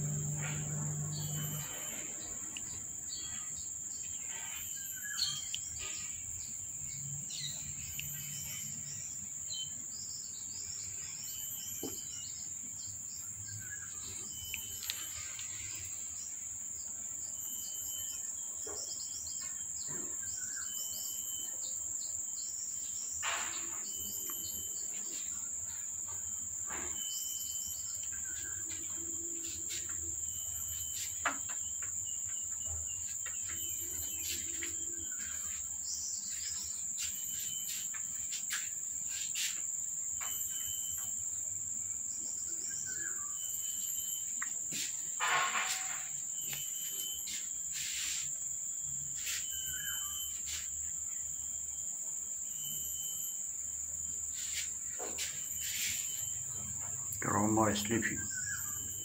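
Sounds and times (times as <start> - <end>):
insect chirring: 0.0 - 59.0
rustle: 32.8 - 41.3, 42.8 - 51.2, 54.1 - 56.8.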